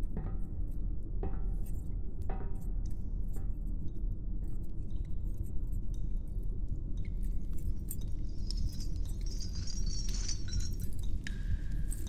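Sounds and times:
small metallic clinks: 7.2 - 12.0
bright jingling shimmer: 8.4 - 11.2.

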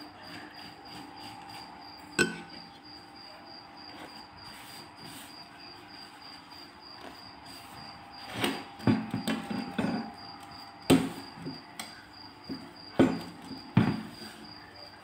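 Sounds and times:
dough sheets rustling and crackling: 0.0 - 11.6
sharp knocks against metal tray: 2.2 - 2.6.

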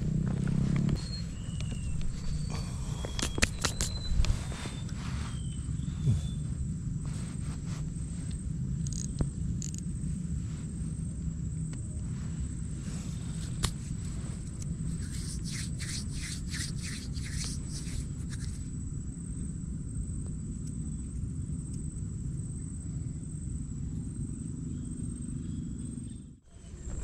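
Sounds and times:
wind rumble on microphone: 0.0 - 27.0
hands rubbing together: 2.0 - 6.5, 13.0 - 18.7.

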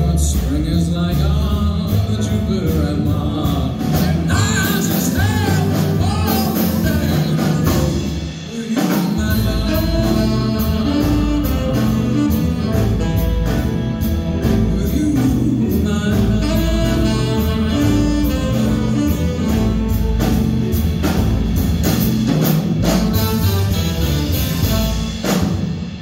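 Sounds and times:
piano: 0.0 - 26.0
upright bass: 0.0 - 26.0
drum and cymbal strokes: 2.7 - 26.0
saxophones: 9.4 - 14.9, 15.5 - 25.4.

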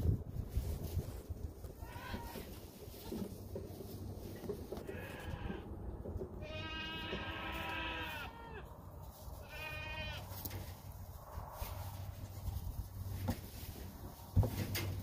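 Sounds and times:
goat kid bleating: 1.7 - 2.6, 4.8 - 5.7, 6.4 - 8.8, 9.4 - 10.4.

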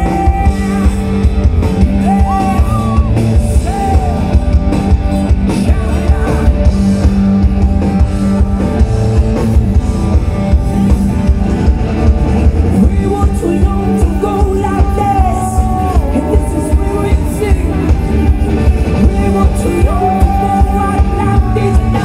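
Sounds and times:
live rock band playing: 0.0 - 22.0
man singing long notes: 12.7 - 22.0.

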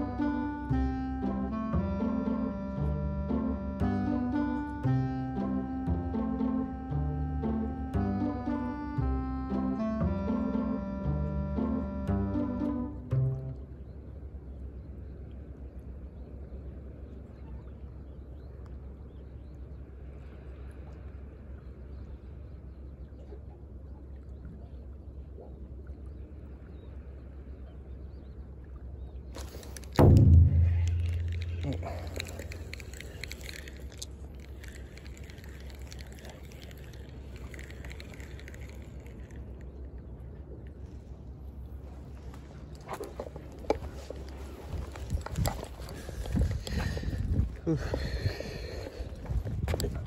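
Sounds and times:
low outdoor rumble: 0.0 - 50.0
sea water lapping: 0.0 - 50.0
wind: 0.0 - 50.0
wind rumbling on microphone: 29.5 - 50.0
microphone handling clicks and rustles: 42.8 - 48.0.

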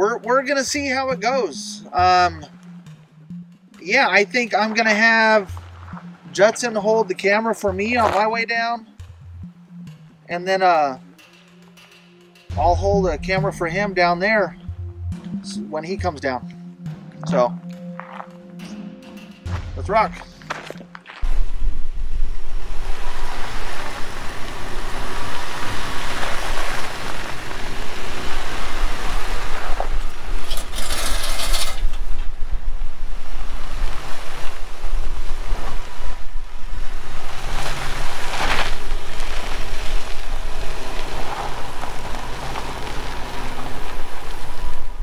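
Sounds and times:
vehicle engine and tyres on dirt: 2.1 - 11.0, 19.4 - 45.0
loud rush of hiss: 21.2 - 31.8, 32.7 - 45.0
wind noise on microphone: 21.2 - 45.0.

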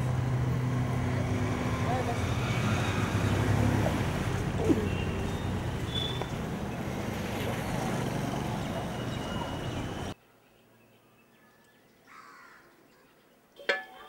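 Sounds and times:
passing traffic rumble: 0.0 - 10.2.

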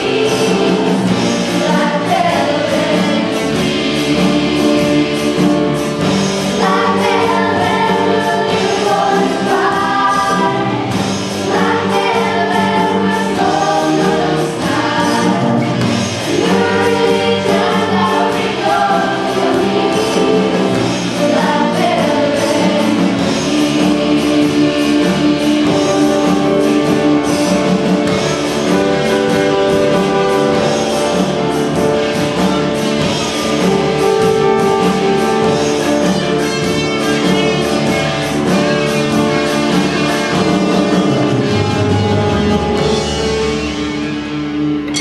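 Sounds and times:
singing over instruments: 0.0 - 27.8.

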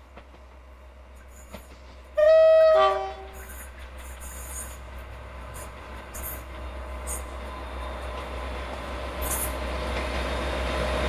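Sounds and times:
train engine and wheel noise: 0.0 - 11.0
two-tone locomotive horn: 2.2 - 3.4.

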